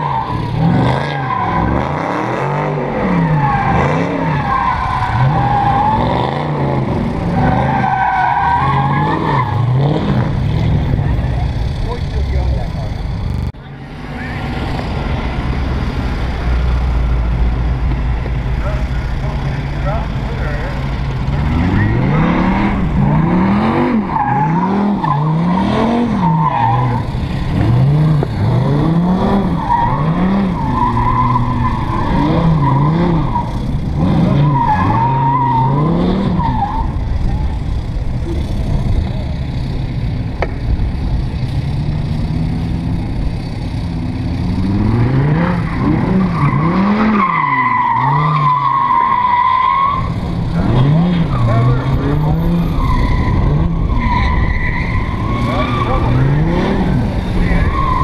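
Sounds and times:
car engine revving: 0.0 - 58.0
tyres squealing: 29.2 - 37.6, 45.5 - 58.0.

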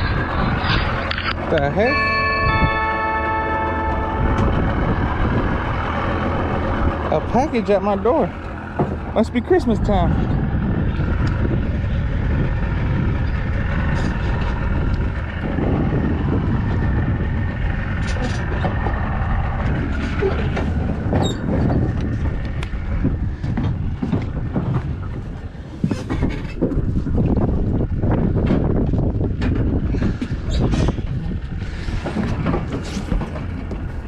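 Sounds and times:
wind buffeting microphone: 0.0 - 34.0.

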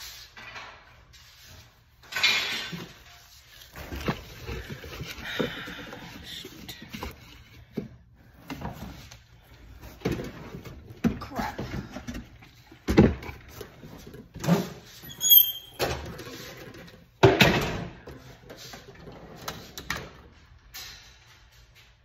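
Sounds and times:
short high squeak: 15.0 - 15.9.

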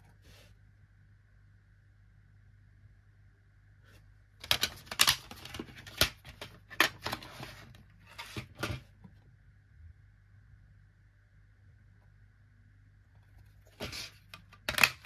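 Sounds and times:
plastic disc case clicking: 4.4 - 7.3.

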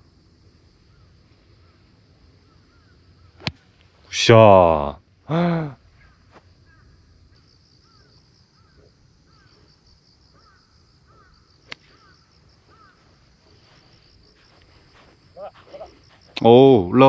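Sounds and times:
high insect drone: 0.0 - 17.0
bird chirping: 5.9 - 16.4.

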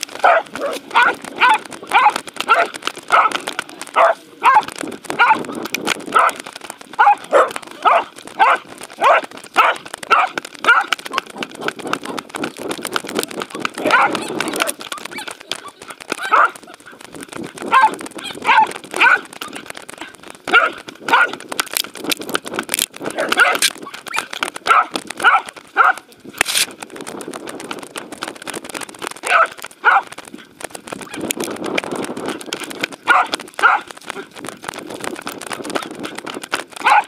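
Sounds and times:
dog barking: 0.2 - 5.4, 6.1 - 6.4, 7.0 - 10.9, 13.8 - 15.3, 16.2 - 16.6, 17.7 - 19.3, 20.5 - 21.4, 23.2 - 23.7, 24.7 - 26.0, 29.3 - 30.1, 33.1 - 33.9.

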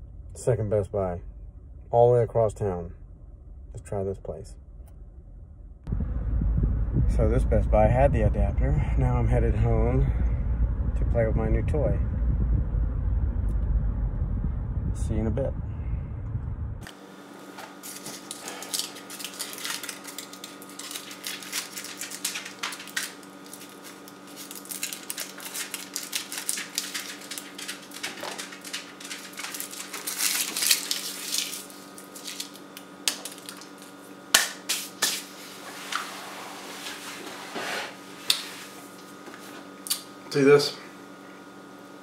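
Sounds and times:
electrical room hum: 0.0 - 42.0.

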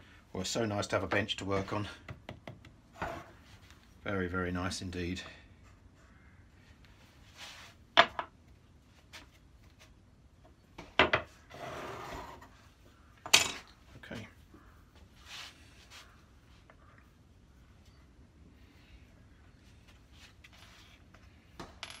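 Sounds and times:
wood scraping slide: 11.5 - 12.6.

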